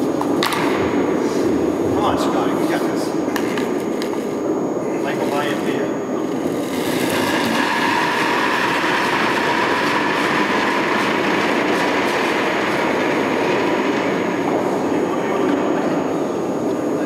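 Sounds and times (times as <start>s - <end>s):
curling stone sliding on ice: 6.3s - 10.4s.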